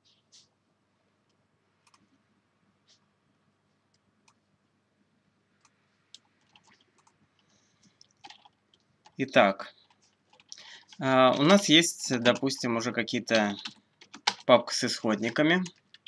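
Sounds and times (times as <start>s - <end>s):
computer mouse clicks: 1.8s - 2.1s, 5.6s - 9.2s.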